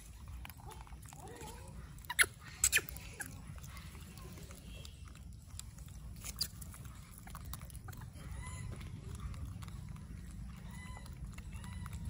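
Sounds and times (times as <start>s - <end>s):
monkeys chewing food: 0.0s - 12.0s.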